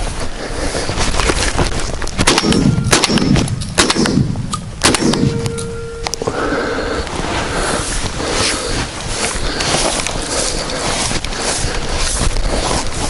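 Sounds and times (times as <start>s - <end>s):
dry grass rustling: 0.0s - 2.6s, 5.4s - 13.0s
shotgun shots: 2.2s - 5.7s.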